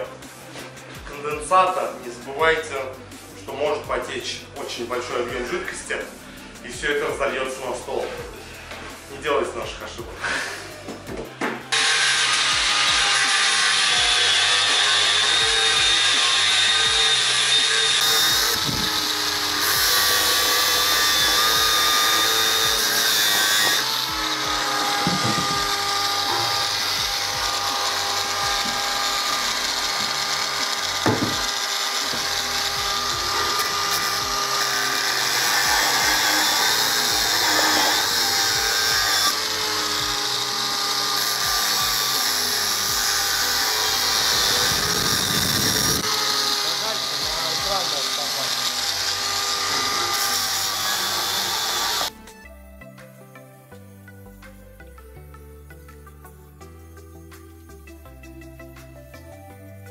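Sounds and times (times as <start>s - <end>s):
angle grinder cutting steel: 11.7s - 52.1s.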